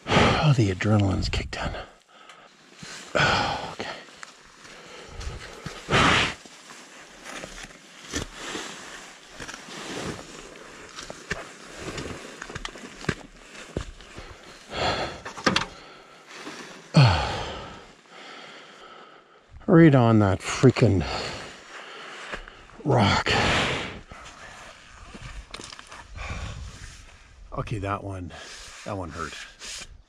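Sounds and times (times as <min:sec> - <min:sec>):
person breathing hard and sighing: 0:00.0 - 0:00.5, 0:01.6 - 0:06.4, 0:14.1 - 0:19.6, 0:20.9 - 0:24.5, 0:26.0 - 0:27.1
person groaning: 0:03.2 - 0:04.0, 0:17.0 - 0:17.8
footsteps on loose gravel: 0:03.8 - 0:14.7.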